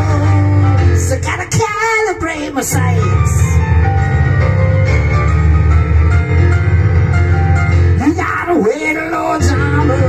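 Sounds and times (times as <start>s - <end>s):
person singing: 0.0s - 3.6s, 8.0s - 10.0s
boogie-woogie piano: 0.0s - 10.0s.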